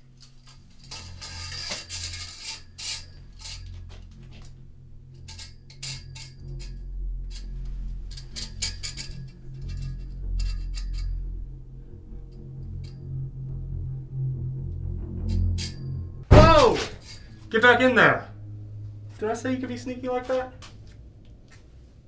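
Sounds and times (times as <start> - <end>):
low droning score hum: 0.0 - 22.0
metal chain rattling: 0.2 - 11.3.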